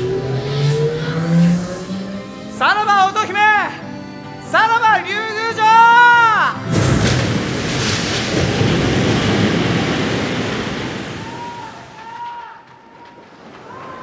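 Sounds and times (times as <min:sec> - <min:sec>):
rushing wash of water: 0:06.6 - 0:12.1.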